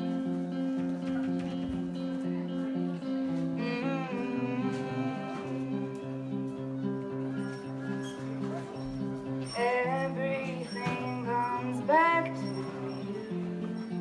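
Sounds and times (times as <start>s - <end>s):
strummed guitar through speaker: 0.0s - 14.0s
gliding guitar note: 3.0s - 7.5s.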